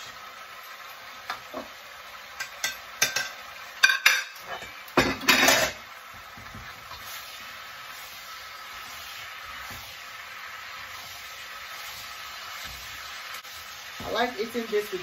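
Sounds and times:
faint sizzle: 0:00.0 - 0:15.0
ceramic plates clinking and clattering: 0:02.4 - 0:05.8
wooden spatula stirring in a wok: 0:05.8 - 0:15.0.

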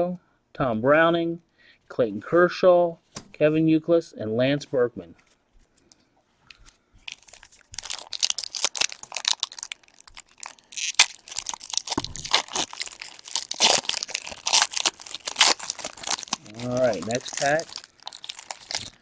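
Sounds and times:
foil wrapper tearing and crinkling: 0:07.1 - 0:19.0.

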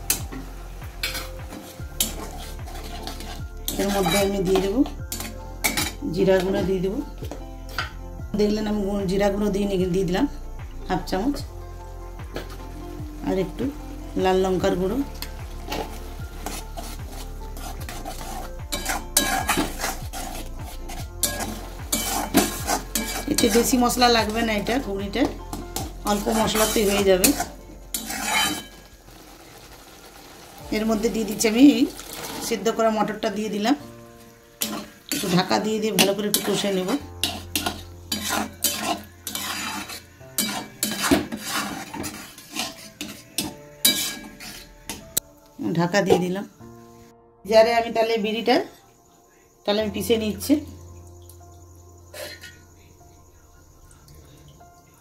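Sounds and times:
metal spatula scraping pan: 0:00.0 - 0:06.0, 0:14.9 - 0:28.9, 0:34.6 - 0:45.2
food sizzling in pan: 0:00.0 - 0:08.2, 0:10.4 - 0:45.2.

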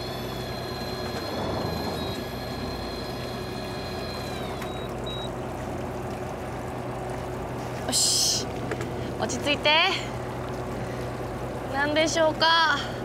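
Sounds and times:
electric fishing reel motor whining: 0:00.0 - 0:05.3
boat engine humming: 0:00.0 - 0:13.0.

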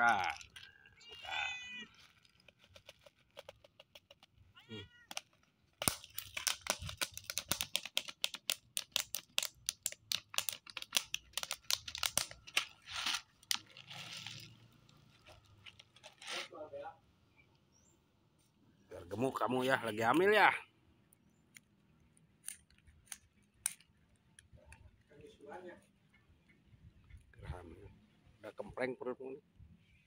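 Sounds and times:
cat crunching dry kibble: 0:00.0 - 0:01.0, 0:01.8 - 0:16.4
cat meowing: 0:01.0 - 0:01.9, 0:04.5 - 0:05.1.

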